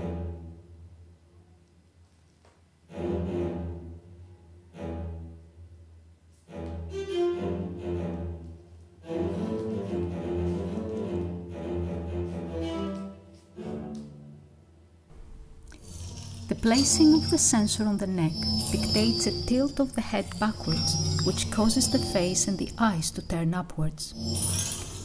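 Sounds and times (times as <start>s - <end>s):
low-pitched cello swells: 15.7s - 23.4s.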